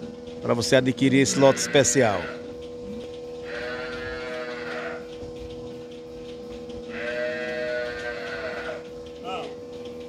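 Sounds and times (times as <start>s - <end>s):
steady hum: 0.0s - 10.0s
cattle mooing: 1.2s - 2.5s, 3.4s - 5.1s, 6.9s - 8.9s.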